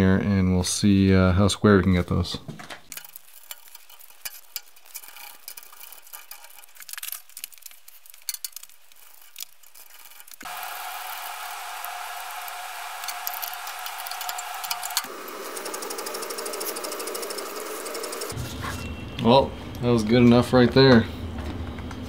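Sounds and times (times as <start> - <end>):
metal parts clicking and clunking: 2.5 - 10.5
machine whirring hum with whine: 10.4 - 18.4.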